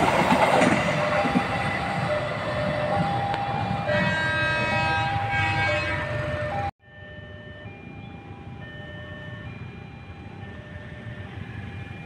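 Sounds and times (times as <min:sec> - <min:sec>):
train horn: 0:03.8 - 0:06.6.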